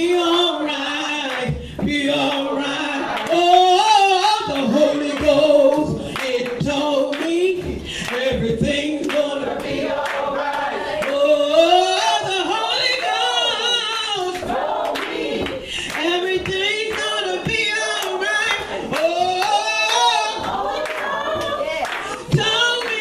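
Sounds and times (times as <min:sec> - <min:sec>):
voices singing along: 0:00.0 - 0:23.0
woman singing gospel song: 0:00.0 - 0:23.0
hands clapping: 0:03.1 - 0:11.3, 0:12.0 - 0:23.0.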